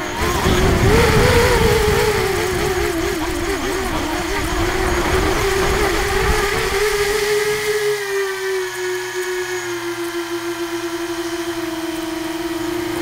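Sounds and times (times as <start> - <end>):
wind rushing over microphone: 0.0 - 8.0
drone motors humming: 0.0 - 13.0.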